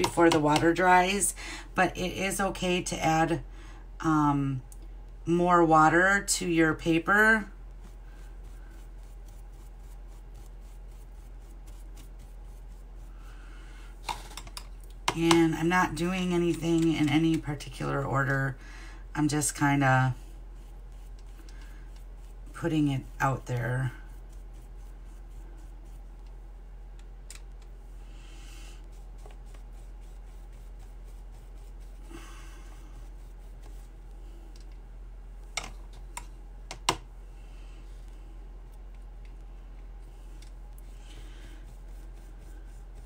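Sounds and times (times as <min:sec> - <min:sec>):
steady low hum: 0:00.0 - 0:43.0
paintbrush scratching on paper: 0:06.8 - 0:13.4, 0:19.3 - 0:26.5, 0:28.6 - 0:34.2, 0:40.7 - 0:43.0.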